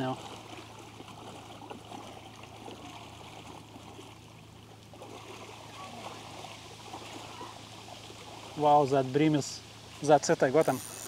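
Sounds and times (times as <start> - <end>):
low steady hum: 0.0 - 11.0
trickle of running water: 0.0 - 11.0.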